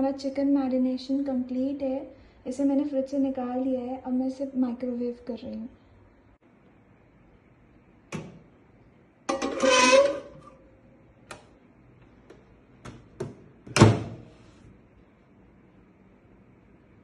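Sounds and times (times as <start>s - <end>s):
plate scraping: 9.3s - 10.6s
microwave door shutting: 13.7s - 14.2s.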